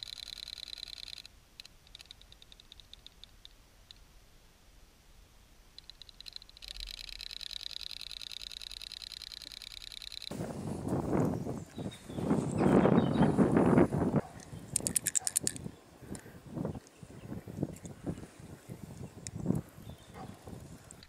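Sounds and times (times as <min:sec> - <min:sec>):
toy motor ticking underwater: 0:00.0 - 0:04.0, 0:05.8 - 0:10.3, 0:14.7 - 0:15.6.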